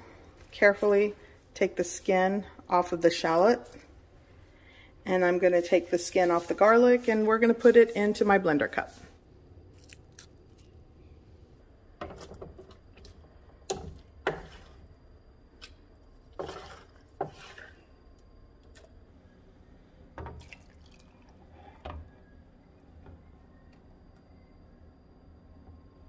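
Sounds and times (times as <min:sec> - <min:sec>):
wooden spatula scraping metal pan: 0:13.7 - 0:14.8, 0:16.4 - 0:17.8
soft wet plops and drips: 0:20.2 - 0:21.5
juices pouring into cup: 0:20.4 - 0:21.4.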